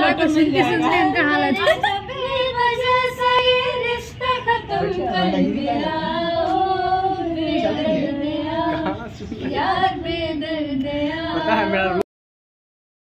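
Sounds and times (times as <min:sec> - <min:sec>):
woman singing without words: 0:00.0 - 0:12.0.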